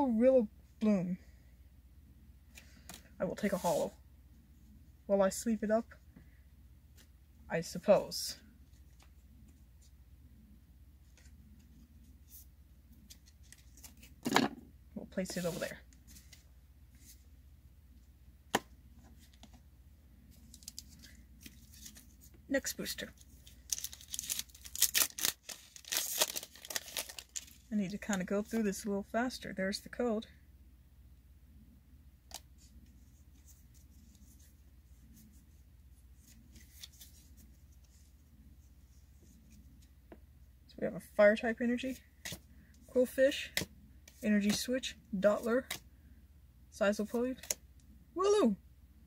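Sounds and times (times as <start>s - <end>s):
low steady hum: 0.0s - 49.0s
cards rustling and ticking: 23.2s - 28.3s.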